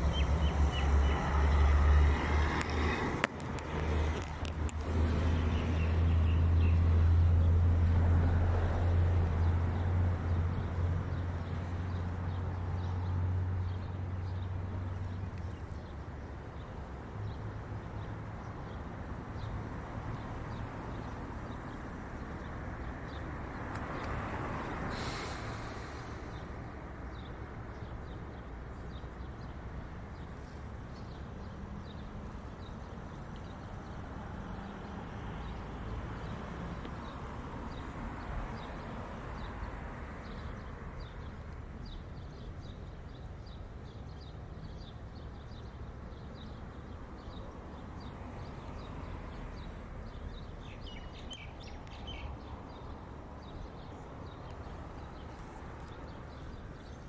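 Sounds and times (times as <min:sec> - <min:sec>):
road traffic rushing: 0:00.0 - 0:57.0
small birds chirping: 0:24.9 - 0:57.0.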